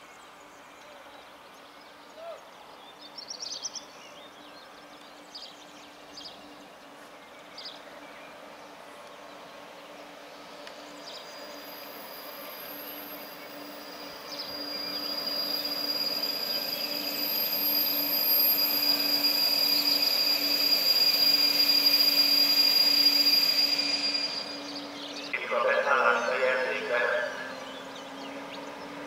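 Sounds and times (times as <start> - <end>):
low train hum: 0.0 - 29.0
train high-pitched squeal: 10.4 - 29.0.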